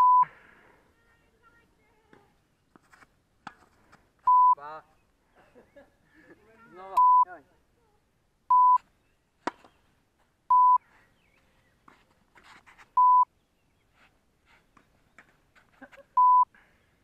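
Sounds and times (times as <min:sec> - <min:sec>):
censor bleeps: 0:00.0 - 0:00.3, 0:04.3 - 0:04.6, 0:07.0 - 0:07.3, 0:08.5 - 0:08.8, 0:10.5 - 0:10.8, 0:13.0 - 0:13.3, 0:16.2 - 0:16.5.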